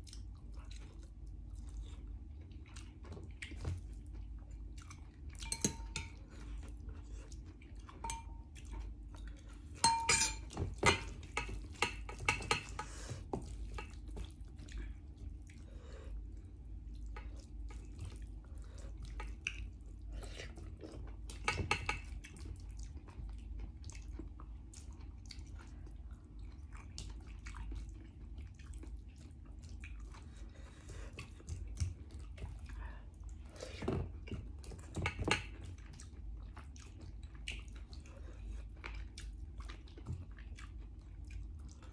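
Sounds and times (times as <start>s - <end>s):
chewing: 0.0s - 9.8s, 10.5s - 41.9s
utensils clinking against a dish: 5.4s - 6.4s, 9.8s - 13.1s.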